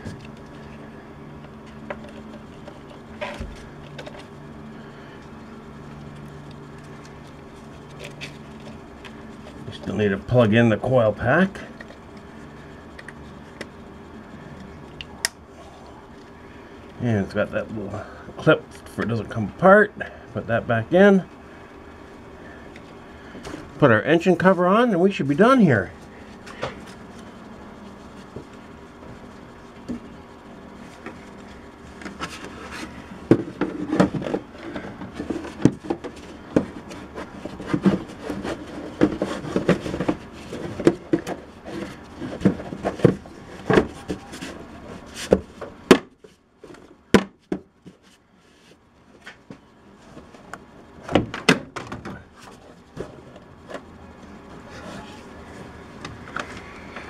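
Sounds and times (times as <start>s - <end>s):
plastic cover knocking and rubbing: 32.0s - 46.2s.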